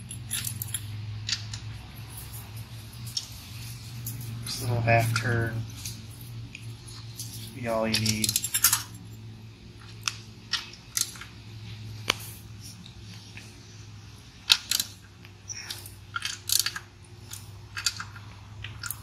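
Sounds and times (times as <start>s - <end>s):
steady low hum: 0.0s - 19.0s
hand tool clicks and ticks: 7.6s - 8.8s, 14.5s - 19.0s.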